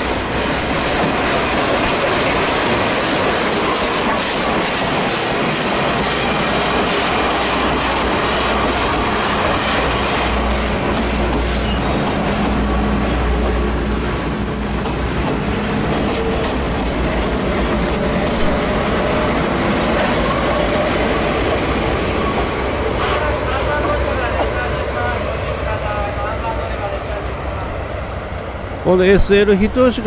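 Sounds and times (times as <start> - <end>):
train wheels rumbling on rails: 0.0 - 30.0
high wheel squeal: 10.2 - 12.2, 13.6 - 15.3.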